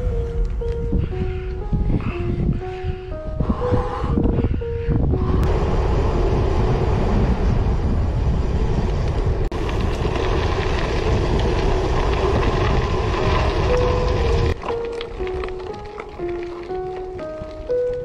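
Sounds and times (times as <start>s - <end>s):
music: 0.0s - 5.5s, 13.6s - 18.0s
wind buffeting microphone: 0.0s - 18.0s
bike tyres rolling on road: 5.5s - 18.0s.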